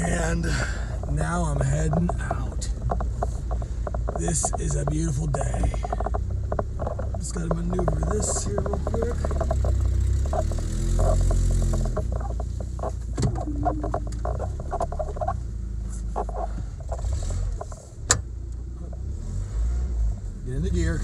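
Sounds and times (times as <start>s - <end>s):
truck engine running at low revs: 0.0s - 21.0s
rapid clicks and clatter: 0.6s - 15.4s.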